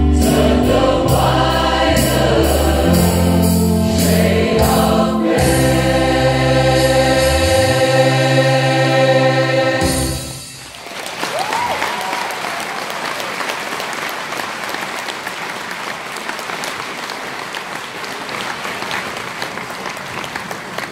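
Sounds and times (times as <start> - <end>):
choir holding chord: 0.0 - 10.6
audience applause: 10.6 - 20.9.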